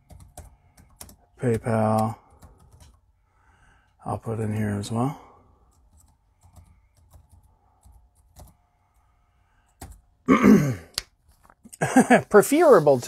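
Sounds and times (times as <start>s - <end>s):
speech: 1.4s - 2.2s, 4.0s - 5.3s, 12.2s - 13.0s.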